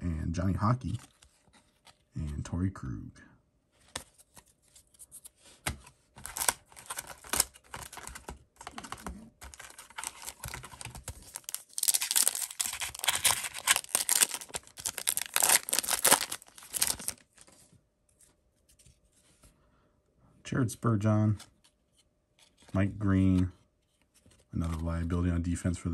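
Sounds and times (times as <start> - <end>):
cards rustling: 0.8 - 2.4, 3.8 - 19.3, 21.2 - 25.2
wrapper crinkling: 6.2 - 17.5.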